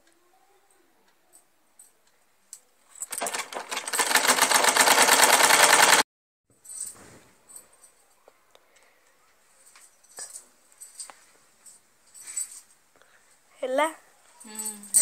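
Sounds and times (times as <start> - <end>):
sewing machine stitching: 3.0 - 6.0.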